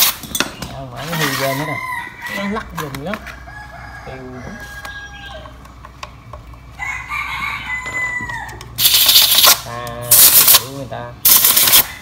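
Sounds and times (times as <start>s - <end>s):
rooster crowing: 1.2s - 5.6s, 6.8s - 8.7s, 11.7s - 12.0s.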